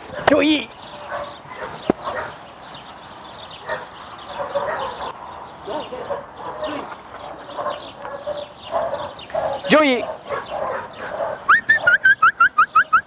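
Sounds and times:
dog yipping and whining: 11.5 - 13.0.

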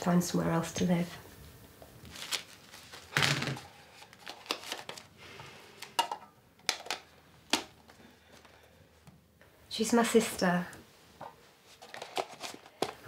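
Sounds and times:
banknotes rustling: 2.0 - 5.1.

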